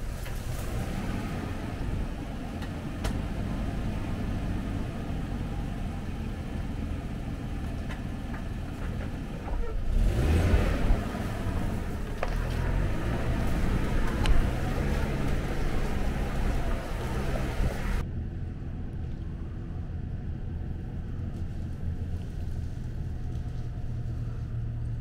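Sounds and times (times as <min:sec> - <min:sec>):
branches scraping vehicle body: 0:00.0 - 0:04.1, 0:07.7 - 0:18.0, 0:21.3 - 0:25.0
vehicle engine running slowly: 0:00.0 - 0:25.0.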